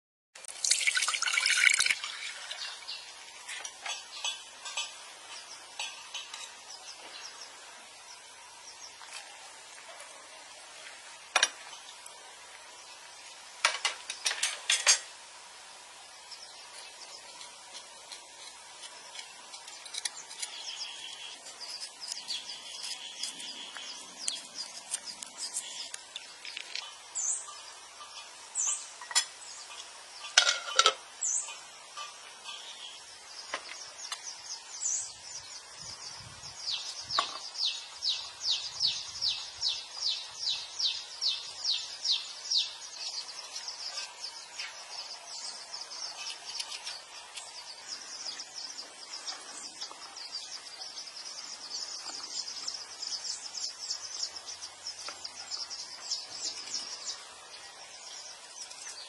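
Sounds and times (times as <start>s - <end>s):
water pouring into a pot: 0.5s - 2.9s
birds chirping: 1.0s - 15.0s, 15.7s - 59.0s.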